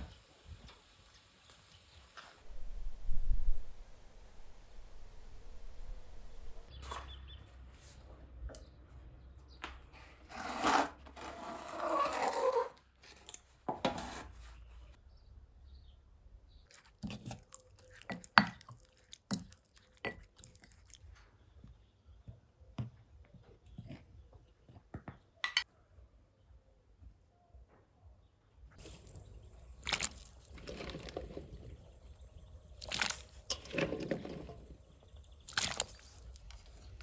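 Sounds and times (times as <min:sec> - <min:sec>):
wooden spoon stirring in glass bowl: 0:16.7 - 0:21.0.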